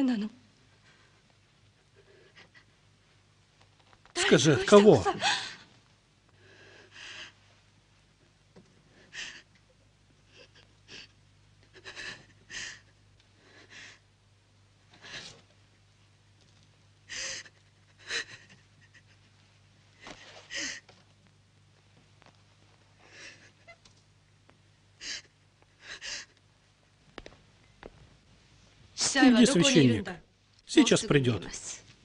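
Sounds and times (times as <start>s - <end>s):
faint low hum: 0.0s - 32.0s
woman sobbing: 1.8s - 2.8s, 4.2s - 5.7s, 9.0s - 14.0s, 17.1s - 19.4s, 23.0s - 23.9s, 25.0s - 26.4s.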